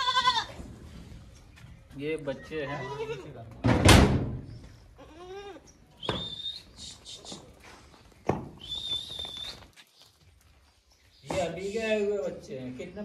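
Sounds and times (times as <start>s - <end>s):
goat kid bleating: 0.0s - 0.6s, 2.3s - 3.5s, 4.9s - 5.8s
loud thump: 3.6s - 4.5s.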